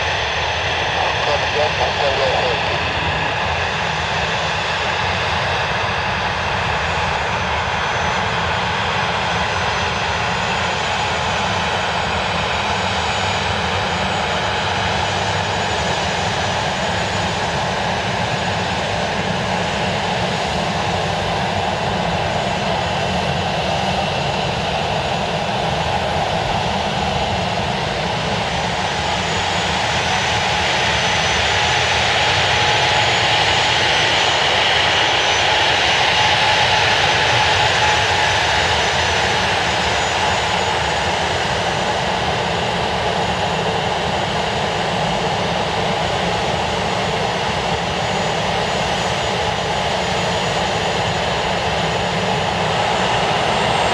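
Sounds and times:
jet engines whining: 0:00.0 - 0:53.9.

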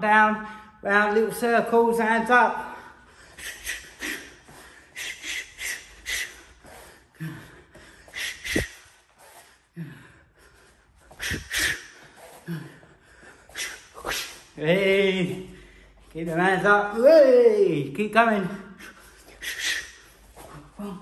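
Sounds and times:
sharp exhales: 0:02.9 - 0:14.6, 0:18.7 - 0:21.0.

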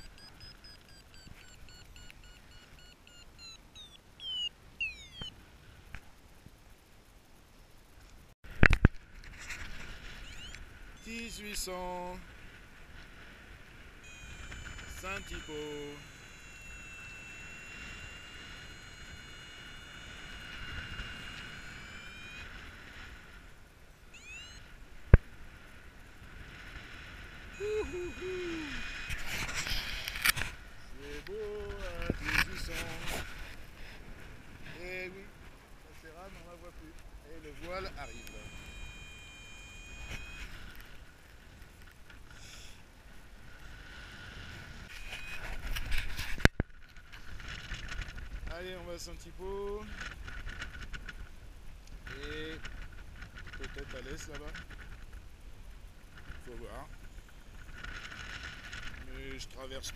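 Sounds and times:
quick rising chirps: 0:00.0 - 0:05.4, 0:10.1 - 0:11.1, 0:24.1 - 0:24.7
variometer electronic tone: 0:00.0 - 0:05.4, 0:09.9 - 0:12.3, 0:13.9 - 0:34.0, 0:34.6 - 0:41.2, 0:43.6 - 0:46.6
wind rushing over microphone: 0:25.0 - 0:35.9
wind rush on microphone: 0:43.1 - 0:59.6.

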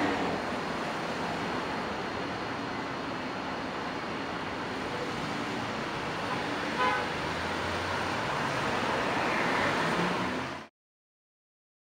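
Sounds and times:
road traffic passing cars: 0:00.0 - 0:10.7
car horn toot: 0:06.8 - 0:07.1.

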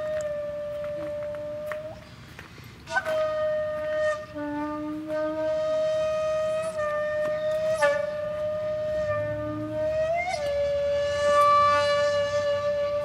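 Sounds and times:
flute-like steady note: 0:00.0 - 0:02.1, 0:02.9 - 0:13.0
lower wind note: 0:02.9 - 0:13.0.

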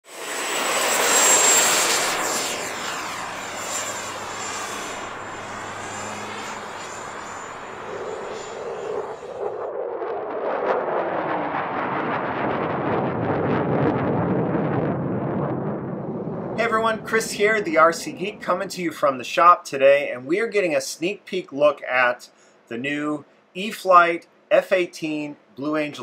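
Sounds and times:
rushing with sharp crackles: 0:00.0 - 0:19.2
electric ducted fan whine: 0:00.1 - 0:26.0
air rushing: 0:00.2 - 0:19.1.

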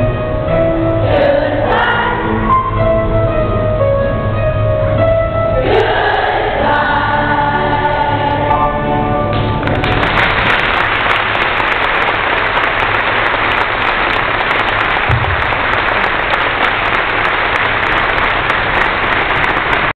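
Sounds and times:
children's choir singing: 0:00.9 - 0:02.9, 0:05.6 - 0:09.1
audience applauding: 0:09.5 - 0:19.9
short low thump: 0:15.1 - 0:15.6.

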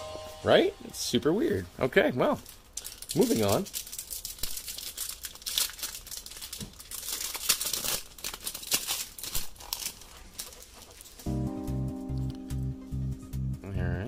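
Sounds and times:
foil wrapper crinkling and tearing: 0:02.1 - 0:11.3.

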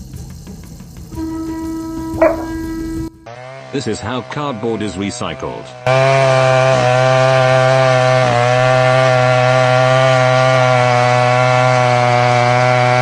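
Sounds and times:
chainsaw running: 0:02.2 - 0:03.7, 0:05.8 - 0:13.0.

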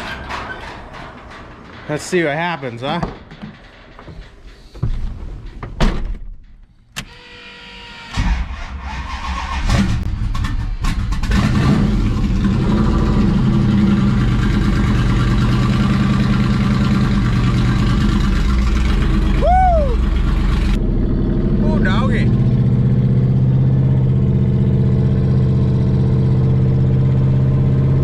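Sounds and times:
engine cranking and idling: 0:08.1 - 0:28.0.

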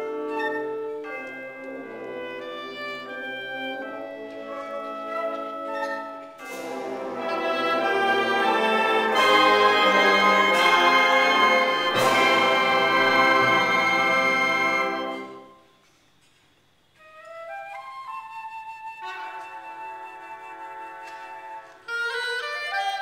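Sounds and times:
concert band playing chords: 0:06.5 - 0:15.3.

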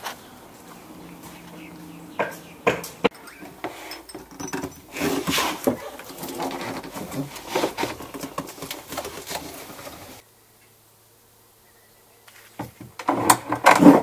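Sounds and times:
pipe wrench clanking on metal: 0:02.2 - 0:05.4.

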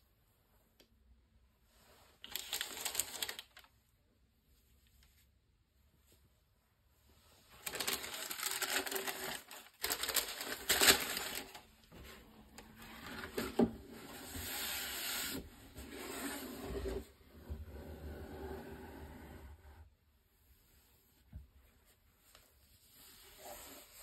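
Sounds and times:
tissue paper crinkling: 0:02.2 - 0:03.7, 0:07.5 - 0:11.9.

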